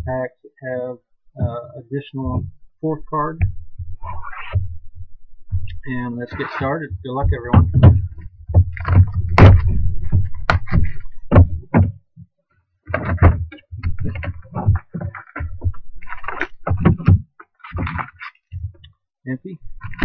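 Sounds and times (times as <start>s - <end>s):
cardboard box handled and opened: 12.9s - 18.5s.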